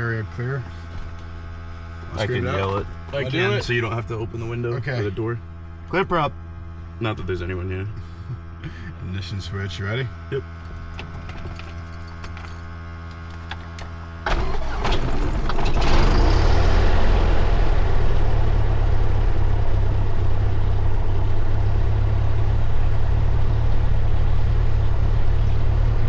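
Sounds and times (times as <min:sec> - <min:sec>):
steady hum: 0:00.0 - 0:26.0
engine starter turning: 0:14.2 - 0:17.1.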